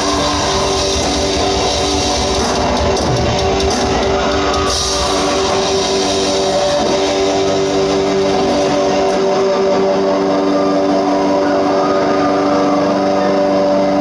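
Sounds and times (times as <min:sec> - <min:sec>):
drum kit: 0:00.0 - 0:10.4
electric guitars holding notes: 0:00.0 - 0:14.0.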